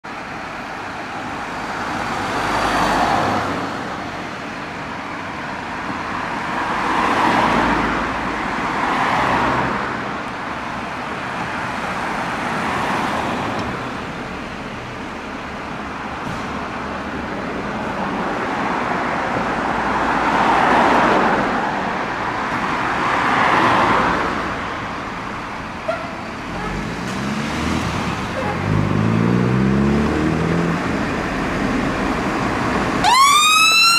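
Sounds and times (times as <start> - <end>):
road traffic going by: 0.0 - 33.9
fire engine diesel engine revving: 26.4 - 33.0.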